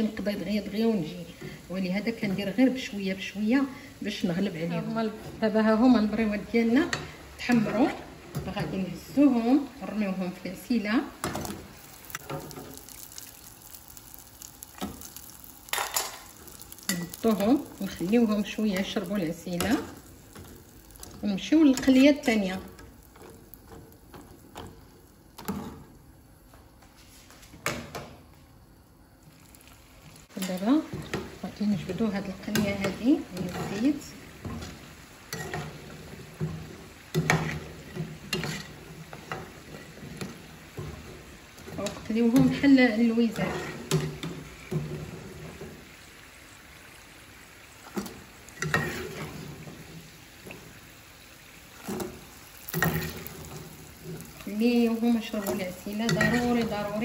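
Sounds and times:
food frying in hot oil: 0.0 - 26.9, 27.6 - 57.0
metal skimmer scraping pan: 32.0 - 45.8, 47.9 - 49.9.

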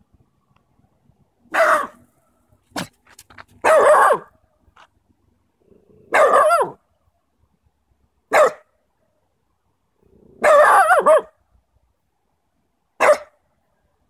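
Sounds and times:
puppy barking: 1.5 - 2.0, 3.6 - 4.3, 6.1 - 6.8, 8.3 - 8.7, 10.4 - 11.4, 13.0 - 13.4.

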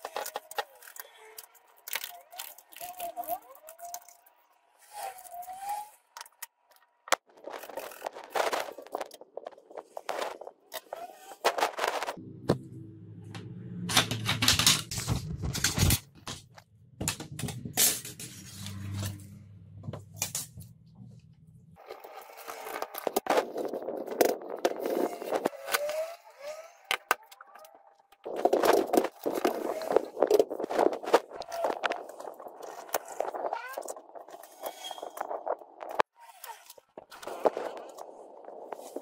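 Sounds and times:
low hum: 12.1 - 16.0
computer parts clicking and knocking: 13.9 - 18.4.

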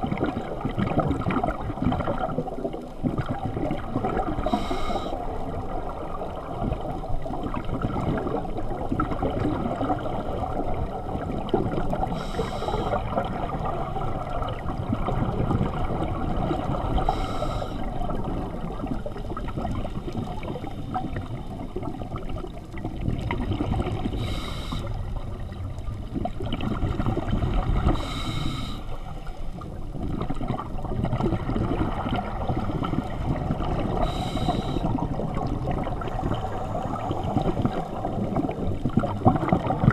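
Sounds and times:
exhaled bubbles gurgling underwater: 0.0 - 39.9
regulator inhalation hiss: 4.5 - 5.2, 12.2 - 13.0, 17.0 - 17.9, 24.2 - 25.0, 28.0 - 29.2, 34.0 - 35.0.

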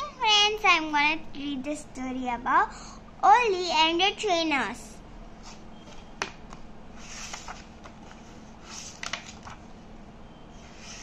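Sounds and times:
paper pages turning: 7.0 - 9.7.

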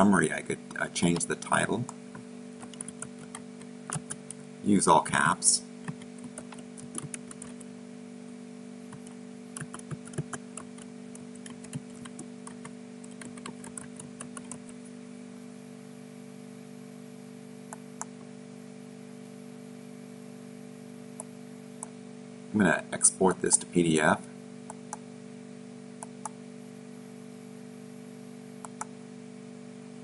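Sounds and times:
steady low hum: 0.0 - 30.0
keyboard typing: 2.6 - 4.4, 5.8 - 7.7, 8.9 - 14.8
mouse clicks: 28.6 - 28.9.

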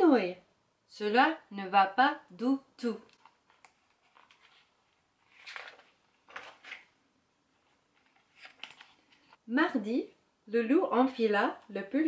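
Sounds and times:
book pages turning: 3.1 - 7.0, 7.6 - 9.4.

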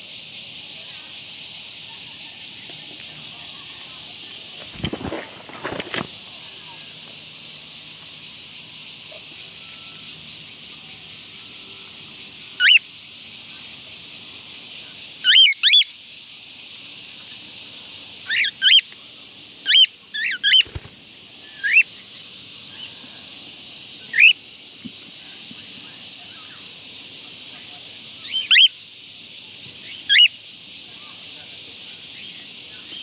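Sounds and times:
steady high hiss: 0.0 - 33.0
cockatiels chirping: 15.3 - 15.9, 19.7 - 20.8.

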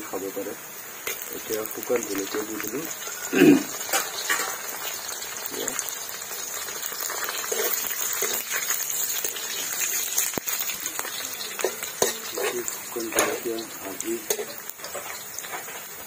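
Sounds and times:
chillies sizzling in hot oil: 0.0 - 16.0
ladle scraping metal pan: 7.4 - 9.4, 14.2 - 15.8.

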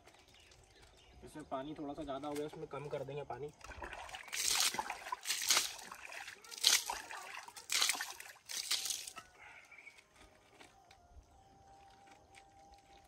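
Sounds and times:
water splashing in a tub: 3.6 - 9.2.

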